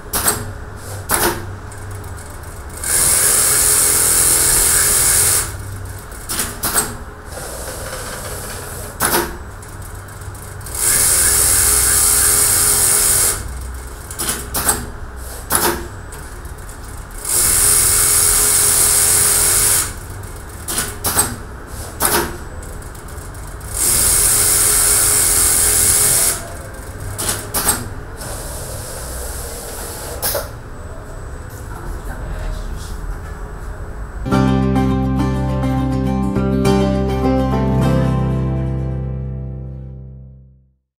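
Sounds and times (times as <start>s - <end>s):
sewing machine stitching: 2.3s - 5.6s, 10.2s - 13.5s, 17.2s - 20.0s, 23.4s - 30.4s.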